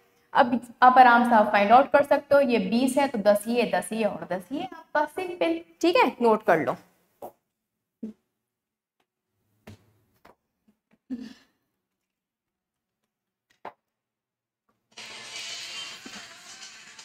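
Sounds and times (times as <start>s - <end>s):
person sighing: 11.1s - 11.6s.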